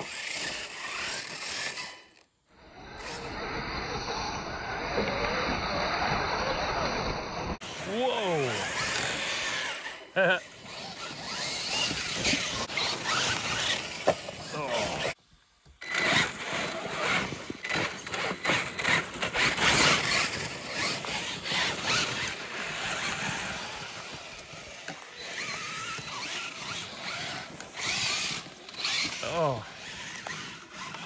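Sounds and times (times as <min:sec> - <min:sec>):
electric motors whining: 0:00.0 - 0:15.2, 0:15.8 - 0:31.0
tyres spinning in dirt: 0:07.6 - 0:15.2, 0:15.8 - 0:31.0.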